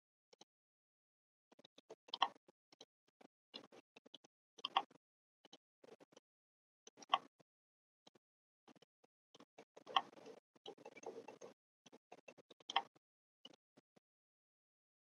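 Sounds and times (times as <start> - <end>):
computer mouse clicking: 4.6 - 5.0, 6.9 - 7.4, 9.4 - 13.0.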